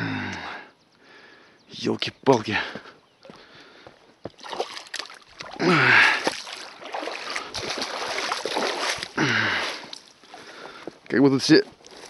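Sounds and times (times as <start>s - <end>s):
person grunting: 0.0s - 0.7s, 5.6s - 6.3s, 9.2s - 9.8s.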